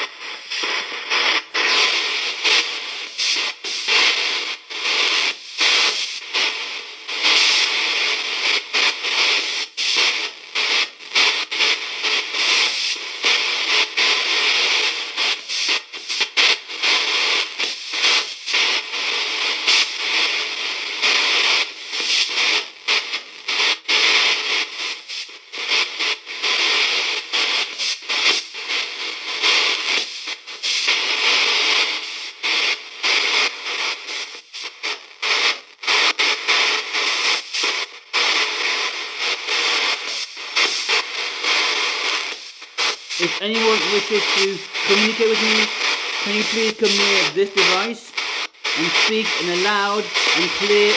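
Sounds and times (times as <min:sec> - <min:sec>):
chopped radio static: 0:00.0 - 0:20.6, 0:36.4 - 0:50.9.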